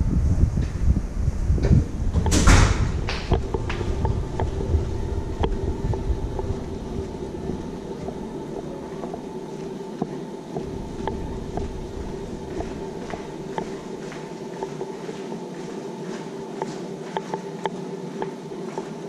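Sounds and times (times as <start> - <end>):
low rumble: 0.0 - 9.7, 10.5 - 14.0
mechanical hum: 0.0 - 19.0
footsteps ticking: 3.0 - 19.0.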